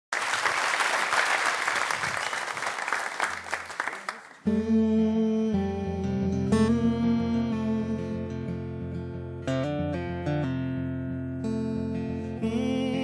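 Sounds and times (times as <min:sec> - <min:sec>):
audience applauding: 0:00.0 - 0:04.5
acoustic guitar strummed chords: 0:04.4 - 0:13.0.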